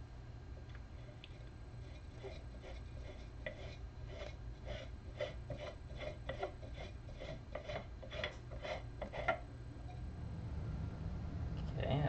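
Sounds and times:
plastic rubbing on plastic: 1.0 - 9.4.

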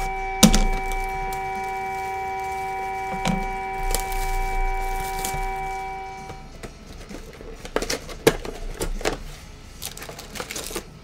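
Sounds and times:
background music chord: 0.0 - 6.7.

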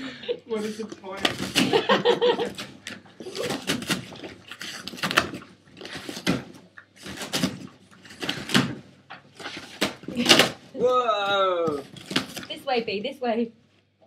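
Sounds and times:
dog ripping cardboard: 0.6 - 10.6, 11.7 - 12.6.

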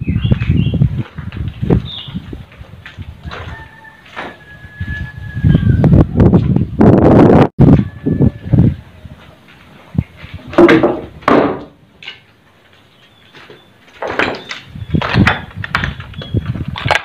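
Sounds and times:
footsteps crunching on rubble: 0.1 - 5.2.

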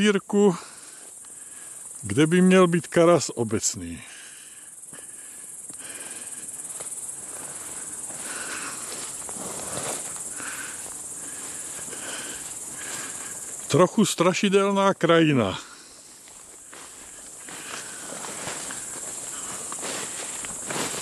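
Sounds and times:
insects chirring: 0.0 - 21.0
footsteps through tall grass: 5.9 - 13.8, 15.3 - 21.0.

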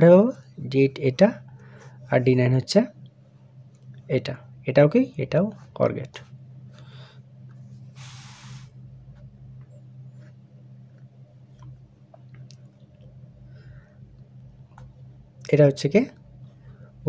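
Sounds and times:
short hiss: 8.0 - 8.8.

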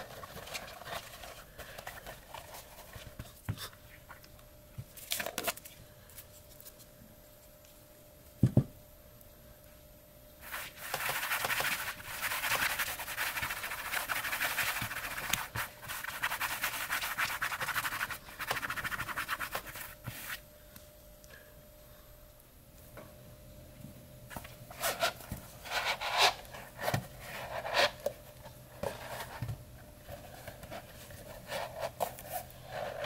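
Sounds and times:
hands rubbing leather pouch: 10.4 - 20.4.

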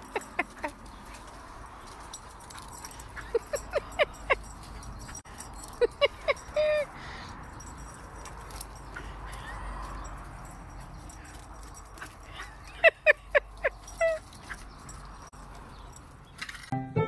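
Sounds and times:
small dog yipping: 12.0 - 15.2.

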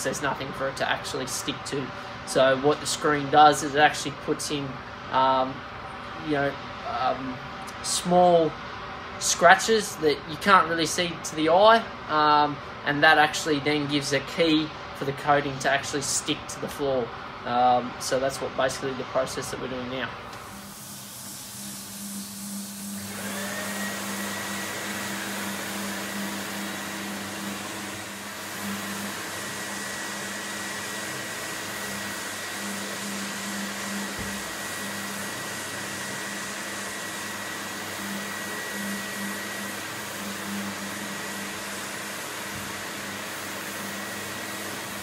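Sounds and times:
dust extraction vacuum: 0.0 - 45.0
floor sanding machine humming: 19.4 - 45.0.

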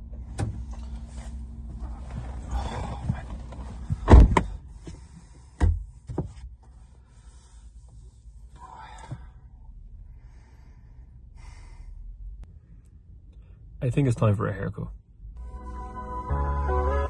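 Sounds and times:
rustling and shuffling: 0.5 - 8.5
car door shutting: 2.2 - 4.6
sun visor thump and click: 3.5 - 4.6.

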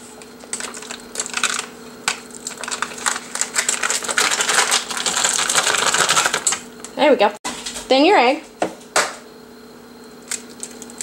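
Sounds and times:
foil wrapper crinkling: 0.4 - 6.6.

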